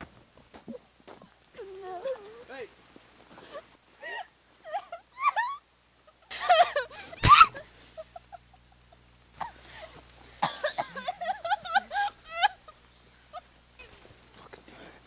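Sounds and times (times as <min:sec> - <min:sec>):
person crying out: 0:04.0 - 0:05.6, 0:06.5 - 0:07.6
short high-pitched cries: 0:07.1 - 0:07.6
person coughing: 0:10.4 - 0:11.1.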